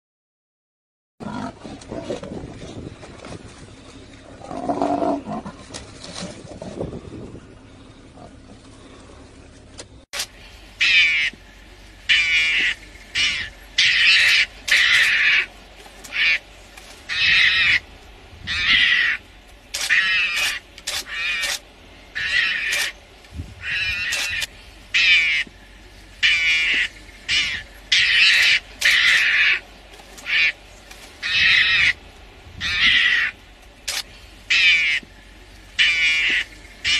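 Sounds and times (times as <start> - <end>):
lion growling: 1.2 - 2.5, 4.2 - 6.9
mongoose screeching calls: 10.8 - 11.4, 12.1 - 15.5, 16.1 - 16.4, 17.1 - 17.8, 18.4 - 19.2, 19.8 - 21.6, 22.2 - 23.0, 23.6 - 25.5, 26.2 - 29.6, 30.2 - 30.6, 31.2 - 32.0, 32.6 - 35.1, 35.8 - 36.9.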